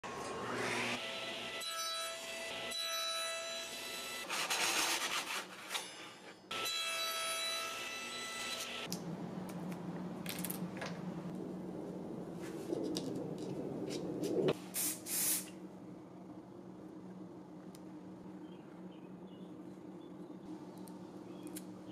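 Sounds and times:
table saw cutting wood: 0.0s - 8.9s
low steady hum: 8.9s - 14.8s, 15.4s - 21.9s.

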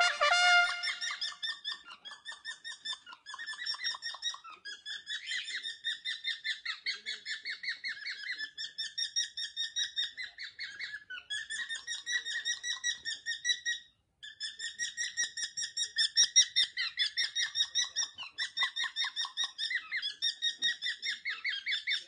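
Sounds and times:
cockatiel warbling call: 0.0s - 1.5s
cockatiels chirping: 0.8s - 22.0s.

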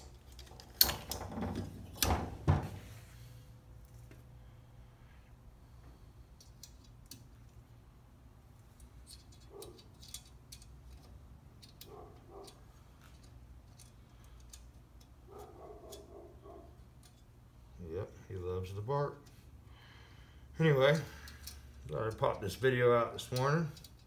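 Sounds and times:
light metallic clicks of small parts: 6.3s - 7.6s, 8.6s - 15.2s, 16.8s - 17.4s, 20.8s - 24.0s
distant dog barking: 11.8s - 12.6s, 15.3s - 16.8s.

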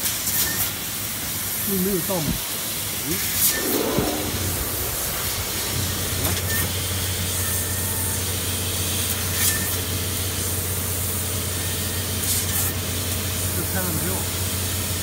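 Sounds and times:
laser cutter hissing: 3.4s - 7.3s.

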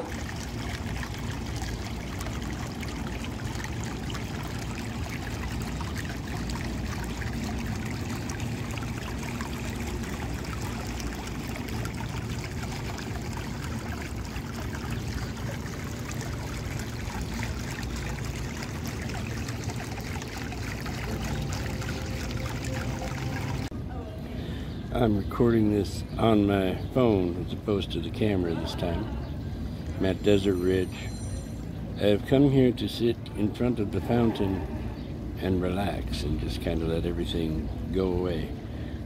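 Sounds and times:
fountain water splashing: 0.0s - 23.7s.

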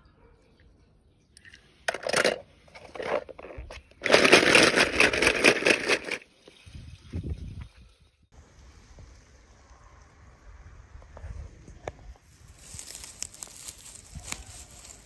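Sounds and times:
toy cars clattering in plastic basin: 1.8s - 6.3s.

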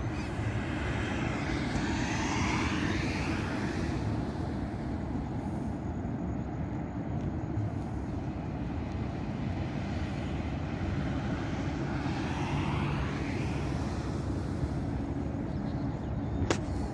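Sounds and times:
vehicle passing: 0.0s - 5.7s, 9.1s - 16.9s
road traffic rumble: 0.0s - 16.9s.

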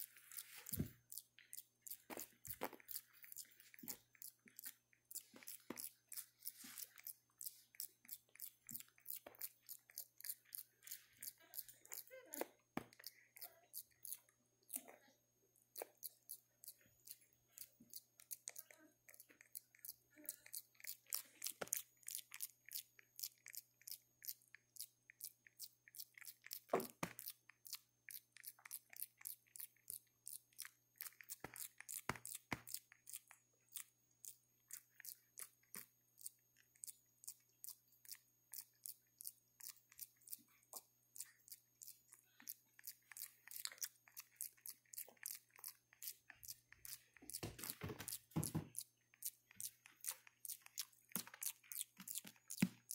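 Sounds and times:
monkey chewing clicks: 15.8s - 52.9s.

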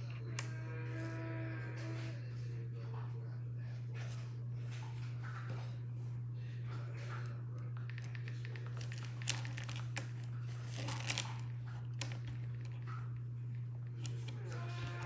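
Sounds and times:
low hum: 0.0s - 15.0s
rustling and crinkling: 8.0s - 15.0s.

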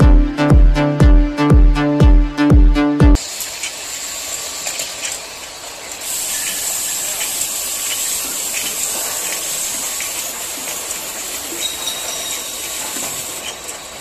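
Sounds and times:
bottle-capping machine hiss: 5.9s - 14.0s.

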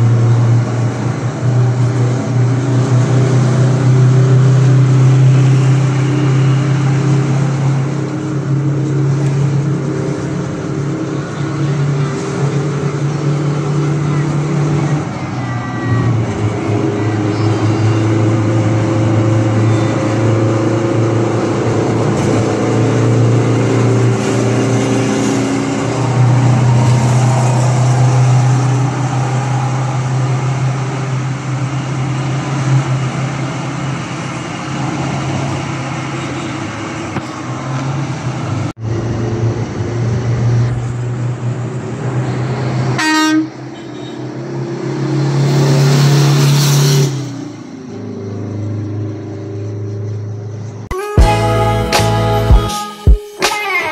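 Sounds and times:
vehicle engines humming: 0.0s - 52.8s
steady held tones: 50.9s - 53.9s.

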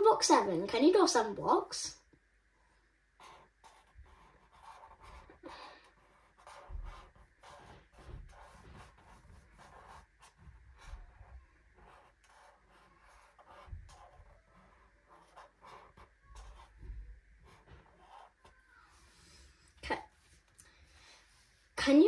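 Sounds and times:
marker scratching on paper: 3.2s - 19.4s.

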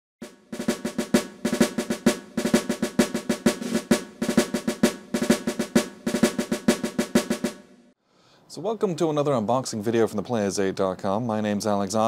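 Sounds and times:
rapid snare drum rolls: 0.2s - 7.9s.

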